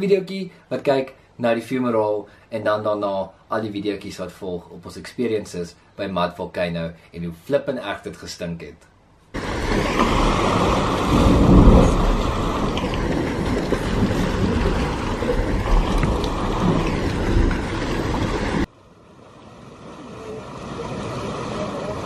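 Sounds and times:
quiet steady noise: 0.0s - 20.8s
hot spring churning and sloshing: 9.4s - 18.7s.

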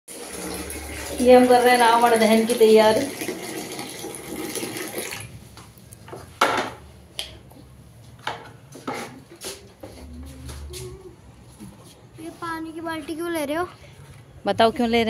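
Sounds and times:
water pouring into plastic bucket: 0.1s - 5.4s.

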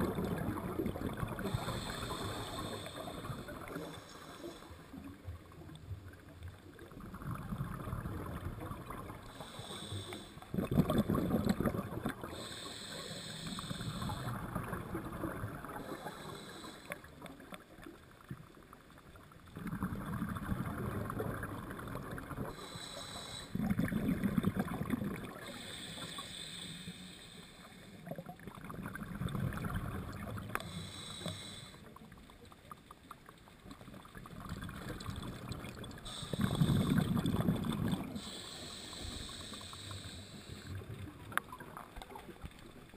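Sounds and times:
exhaled air bubbling: 0.0s - 17.8s, 19.4s - 27.0s, 27.7s - 32.2s, 33.2s - 42.9s
regulator inhale hiss: 1.3s - 5.1s, 9.2s - 10.5s, 12.2s - 14.4s, 15.7s - 17.4s, 22.5s - 23.8s, 25.3s - 28.2s, 30.4s - 32.0s, 36.0s - 41.1s.

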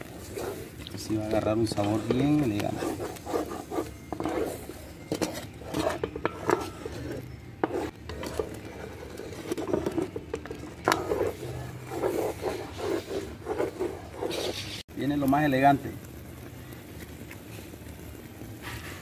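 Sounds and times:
spoon stirring thick sauce: 0.0s - 14.8s.

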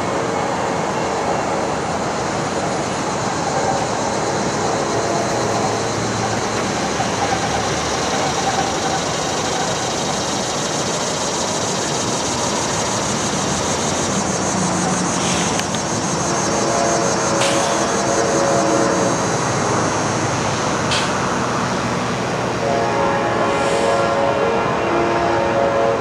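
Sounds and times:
vehicle engine rumble: 1.8s - 18.5s.

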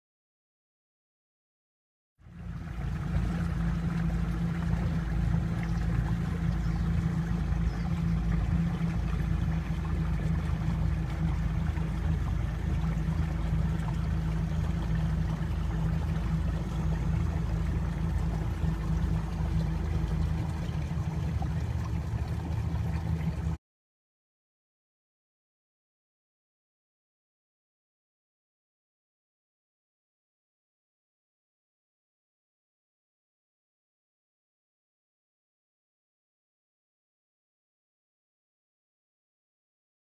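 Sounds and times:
water moving along hulls: 2.2s - 23.6s
electric boat motors humming: 2.3s - 23.6s.

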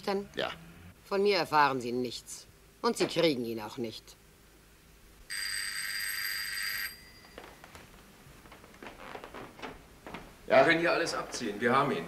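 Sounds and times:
telephone bell ringing: 5.3s - 7.6s
faint knocks and rustles: 7.2s - 10.5s.

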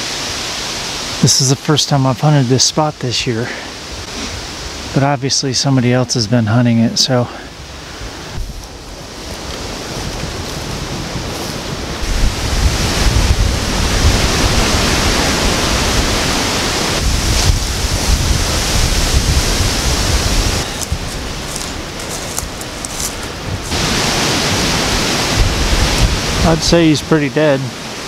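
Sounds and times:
gusty wind through trees: 0.0s - 28.0s
wind buffeting microphone: 7.6s - 27.5s.

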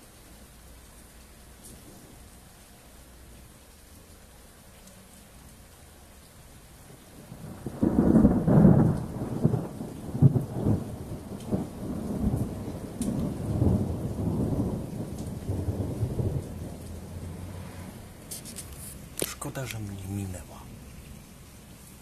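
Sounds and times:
light rain pattering: 0.0s - 22.0s
rolling thunder: 7.2s - 18.0s.

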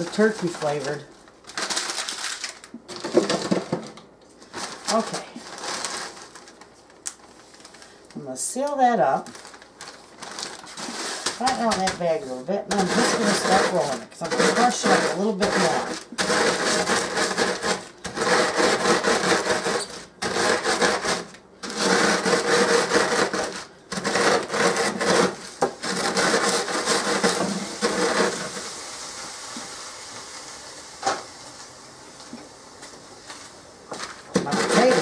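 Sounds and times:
rolling pin crushing crumbs in bag: 0.0s - 29.7s, 33.2s - 35.0s.

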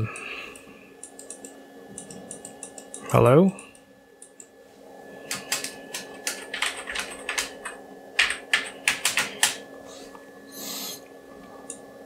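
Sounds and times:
faint steady hum: 0.0s - 12.0s
keyboard keys pressed rapidly: 5.3s - 9.6s.

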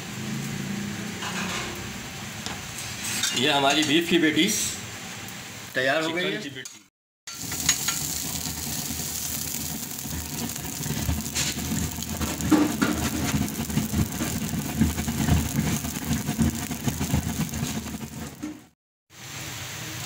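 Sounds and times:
patty sizzling on griddle: 7.3s - 18.8s.

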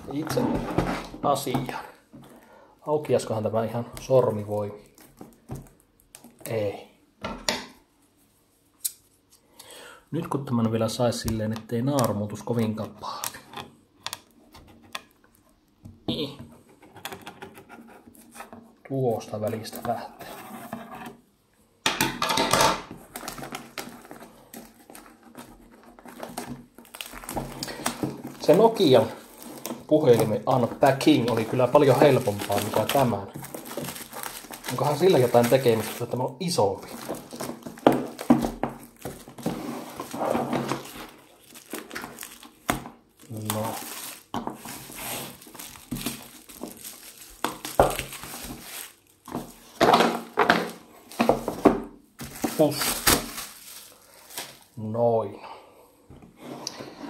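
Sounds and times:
plastic shrink wrap crinkling: 3.1s - 6.7s, 23.0s - 54.9s.

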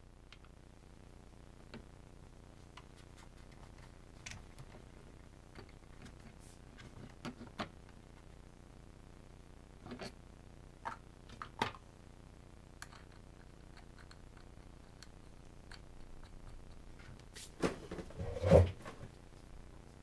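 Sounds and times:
small clicks and knocks of parts: 12.8s - 17.3s.

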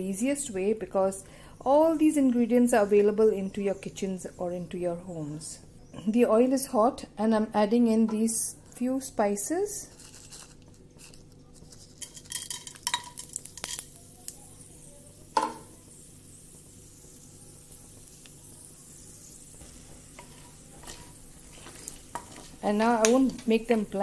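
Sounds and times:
spices sizzling in hot oil: 9.9s - 24.0s.

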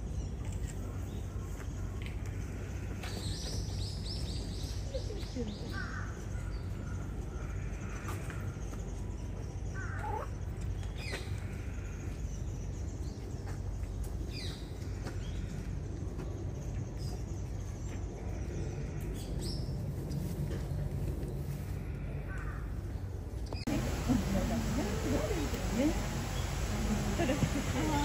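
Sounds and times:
birds calling: 0.6s - 13.7s, 21.8s - 28.0s
low background rumble: 14.6s - 28.0s.

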